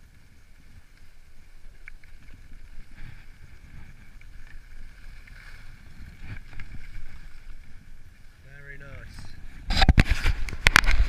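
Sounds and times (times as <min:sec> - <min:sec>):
skis scraping over snow: 0:00.0 - 0:11.0
wind on microphone: 0:02.2 - 0:11.0.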